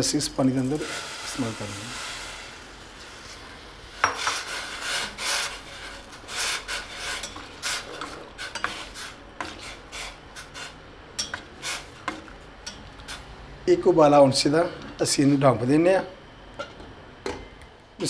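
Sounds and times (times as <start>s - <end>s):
spoon scraping a saucepan: 4.0s - 12.2s.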